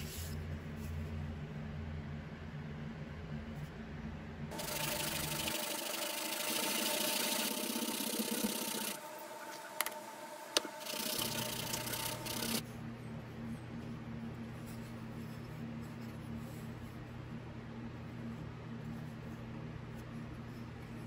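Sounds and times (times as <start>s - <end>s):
wood rasping on sandpaper: 10.8s - 12.6s.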